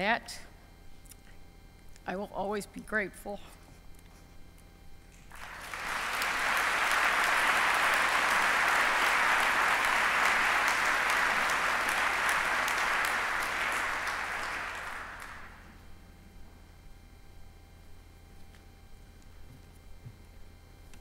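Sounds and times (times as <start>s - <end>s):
audience applauding: 5.3s - 15.8s.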